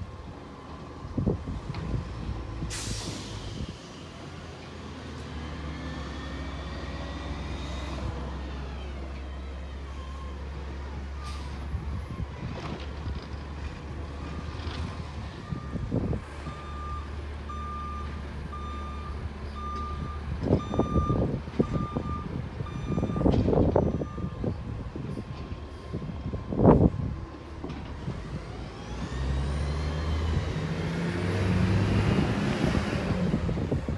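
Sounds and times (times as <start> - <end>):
reversing alarm beeping: 16.4 - 24.4
garbage truck diesel engine revving: 28.0 - 33.9.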